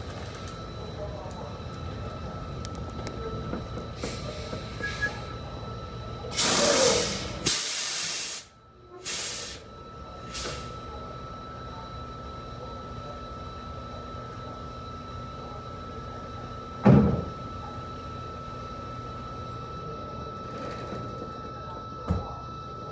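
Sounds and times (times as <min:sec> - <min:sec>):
air brakes hissing: 0:06.4 - 0:09.6.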